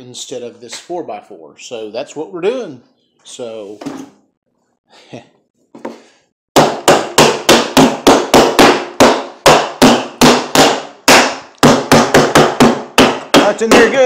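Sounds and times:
wooden mallet knocking on wood: 0:06.6 - 0:14.0.

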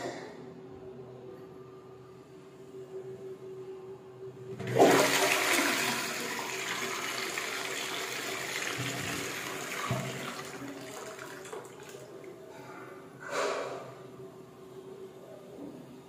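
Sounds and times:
toilet flushing: 0:04.5 - 0:12.3.

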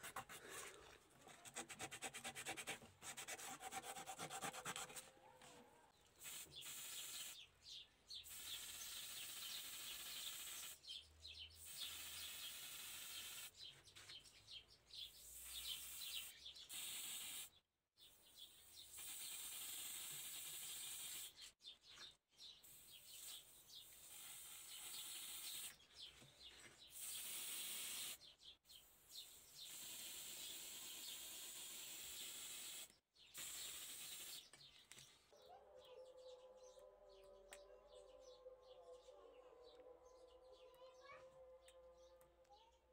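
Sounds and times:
spray paint hissing: 0:06.2 - 0:07.4, 0:08.2 - 0:10.9, 0:11.6 - 0:13.6, 0:15.3 - 0:17.5, 0:18.8 - 0:21.4, 0:22.7 - 0:25.8, 0:26.9 - 0:28.2, 0:29.2 - 0:34.5.

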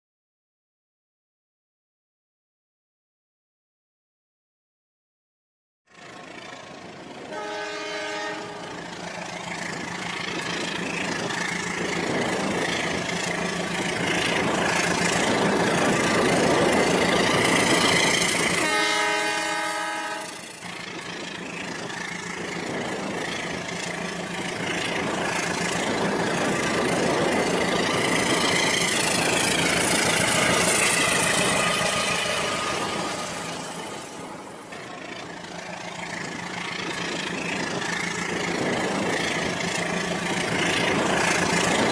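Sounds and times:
toy train horn: 0:07.3 - 0:08.6, 0:18.6 - 0:20.4.

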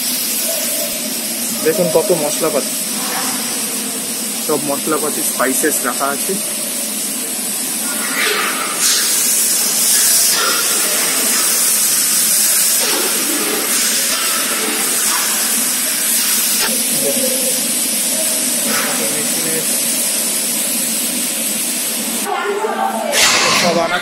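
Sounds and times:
kitchen equipment hissing: 0:00.0 - 0:24.0
kitchen clatter: 0:07.8 - 0:15.7, 0:18.3 - 0:19.8.

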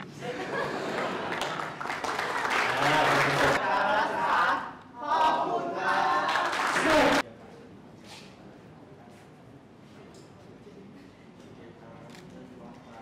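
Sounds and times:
group cheering: 0:01.2 - 0:07.2
hand clapping: 0:01.3 - 0:03.6.

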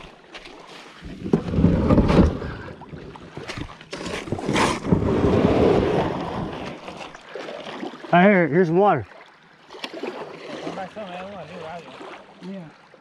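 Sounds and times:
water sloshing: 0:00.0 - 0:13.0
kayak hull scraping on gravel: 0:00.7 - 0:07.8.

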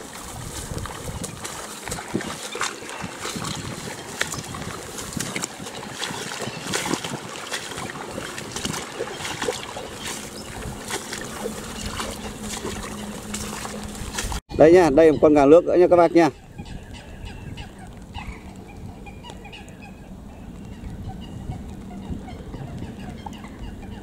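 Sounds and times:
footsteps sloshing through water: 0:00.0 - 0:14.5.

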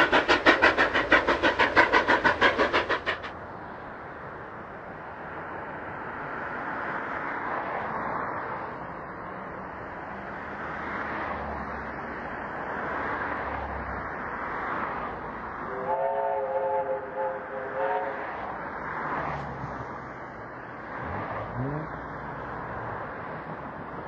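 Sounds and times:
steam locomotive exhaust: 0:00.0 - 0:03.4, 0:15.6 - 0:18.4.

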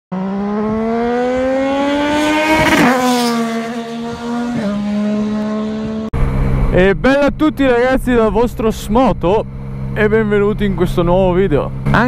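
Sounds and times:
vehicle engine speeding past: 0:00.1 - 0:06.9.

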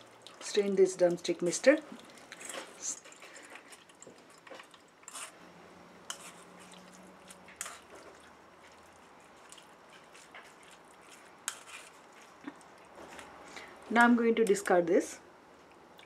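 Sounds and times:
spoon squishing pulp through strainer: 0:00.0 - 0:05.4, 0:06.0 - 0:13.8.

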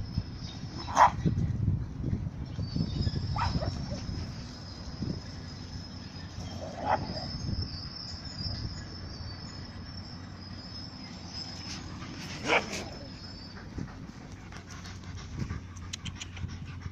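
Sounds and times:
dogs panting: 0:10.9 - 0:16.9.

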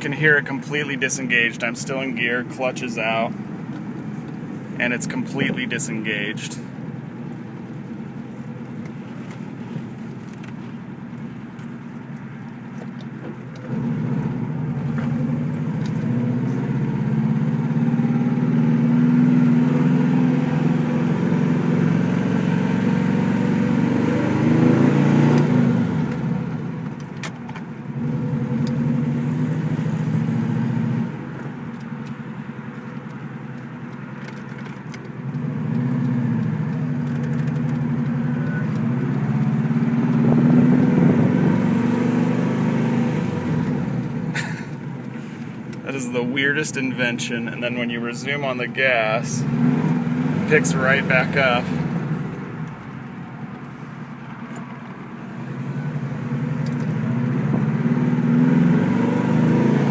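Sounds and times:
car engine revving: 0:13.5 - 0:59.9.

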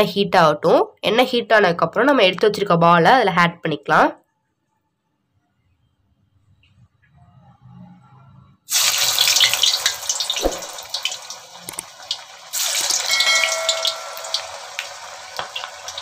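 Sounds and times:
hot oil sizzling loudly: 0:08.7 - 0:16.0.

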